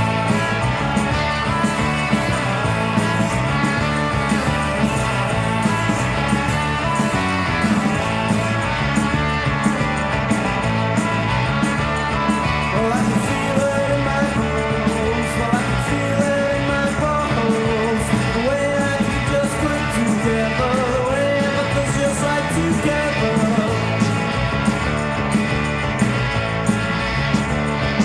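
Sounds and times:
rock band playing: 0.0 - 28.0
person singing: 12.1 - 24.2.

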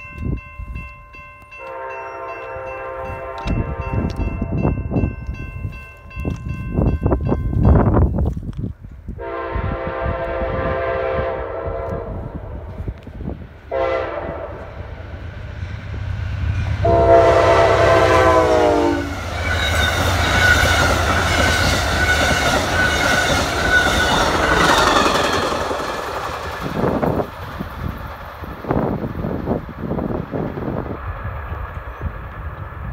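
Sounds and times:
train horn blasts: 1.6 - 4.3, 9.2 - 12.8, 13.7 - 14.9, 16.8 - 25.2
train wheels clicking on rails: 19.1 - 32.9.

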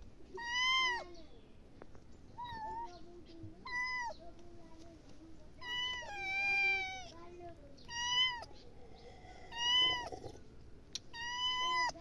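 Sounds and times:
kittens meowing: 5.6 - 7.1, 7.9 - 8.6, 9.4 - 10.2, 11.1 - 12.0.

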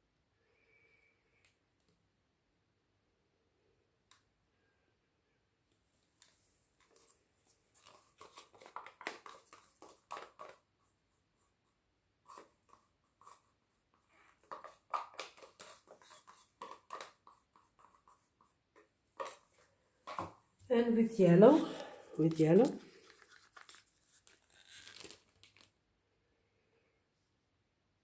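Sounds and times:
plastic cups clicking and tapping: 7.8 - 10.6, 14.2 - 20.3.

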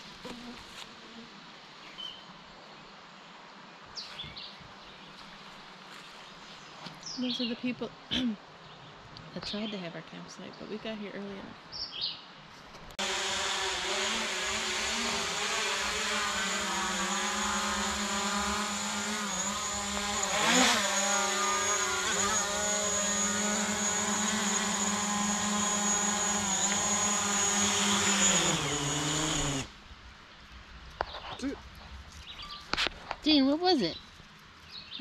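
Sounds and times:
drone propellers whining: 13.0 - 29.7.

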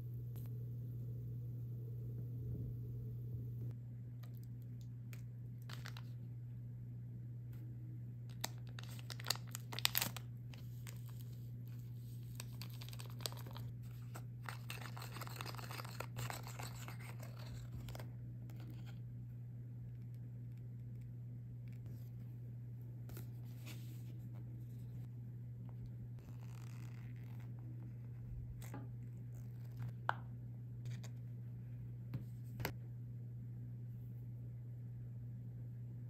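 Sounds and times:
low hum: 0.0 - 36.0
packet crinkling: 5.6 - 6.2, 8.3 - 18.1
foil sachet ripping: 8.3 - 11.4, 12.4 - 18.0.

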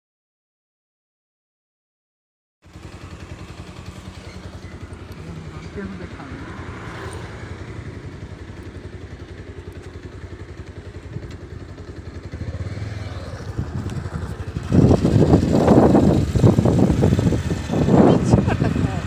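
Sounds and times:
motorcycle engine rumble: 2.6 - 19.0
road noise: 2.6 - 19.0
wind buffeting on microphone: 13.4 - 19.0.

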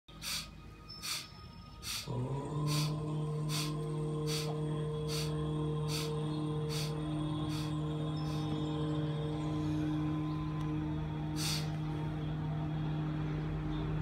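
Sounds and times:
forceful breathing through nose: 0.1 - 8.6, 11.4 - 11.8
droning background music: 0.1 - 14.0.

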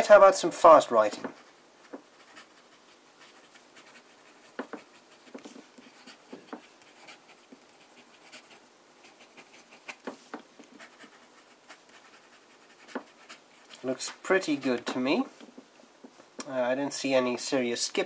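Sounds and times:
fountain pen scratching on paper: 1.3 - 13.8.

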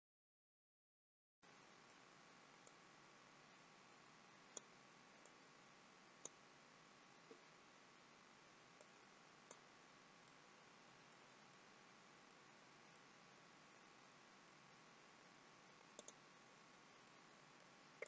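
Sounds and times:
background hiss: 1.4 - 18.0
computer mouse clicks: 15.9 - 16.2.

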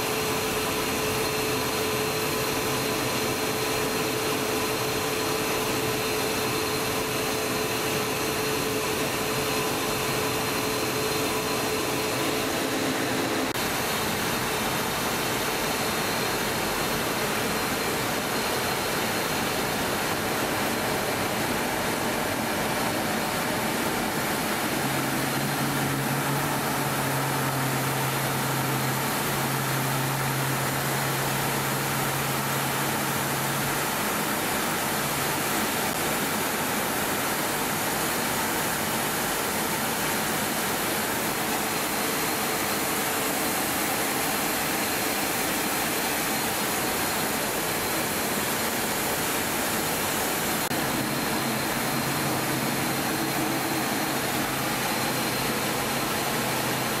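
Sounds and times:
rushing cockpit noise: 6.9 - 16.0, 18.1 - 34.6, 47.9 - 57.0
faint high whine: 40.4 - 57.0.

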